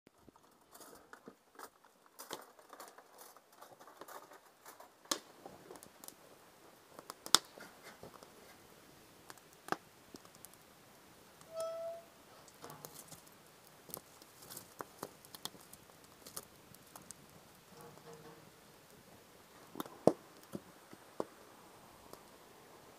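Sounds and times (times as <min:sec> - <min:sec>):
wood fire crackling and popping: 0:00.1 - 0:11.6, 0:12.2 - 0:21.4, 0:22.0 - 0:22.4
short squeak: 0:11.5 - 0:12.1.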